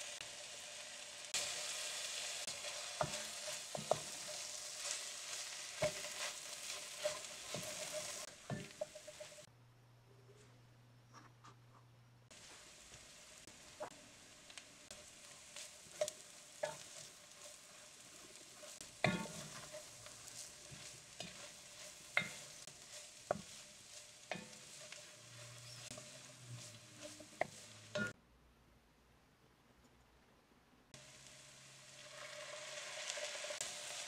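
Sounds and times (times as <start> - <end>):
food sizzling in a pot: 0.0 - 9.5, 12.3 - 28.2, 31.0 - 34.0
utensil scraping against pot: 2.5 - 9.5, 15.0 - 28.2.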